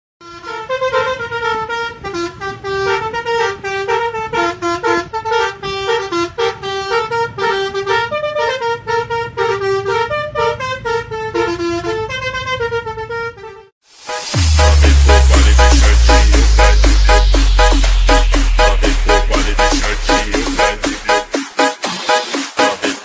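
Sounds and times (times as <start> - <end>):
multi-tone bus horn tune: 0.2 - 23.0
low rumble: 14.2 - 21.3.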